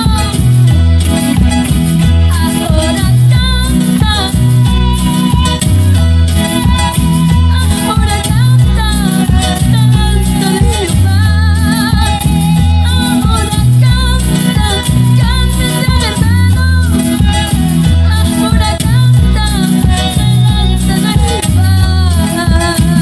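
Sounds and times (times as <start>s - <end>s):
live gospel band playing: 0.0s - 23.0s
woman singing with vibrato: 0.0s - 23.0s.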